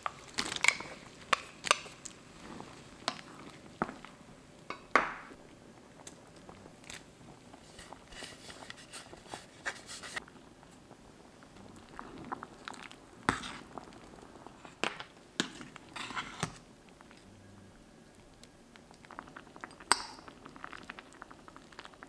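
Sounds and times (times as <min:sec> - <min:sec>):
metal ladle scraping in pot: 0:13.3 - 0:13.7, 0:15.4 - 0:16.6.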